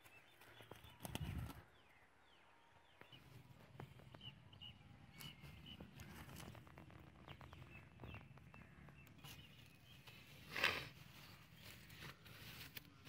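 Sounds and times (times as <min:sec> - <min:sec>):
handling clicks and rustles: 0:00.0 - 0:01.7, 0:05.1 - 0:13.0
faint bird chirps: 0:00.0 - 0:13.0.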